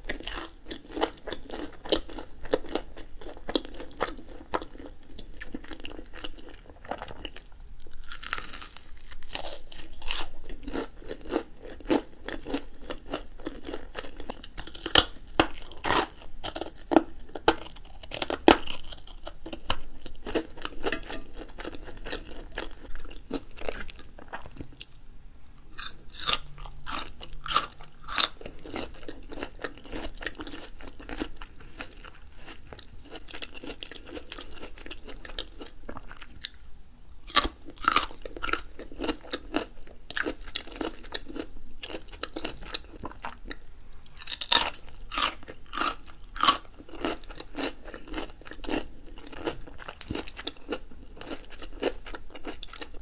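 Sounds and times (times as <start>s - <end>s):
crisp crunching bites: 7.8s - 22.7s, 25.8s - 32.0s, 37.2s - 41.4s.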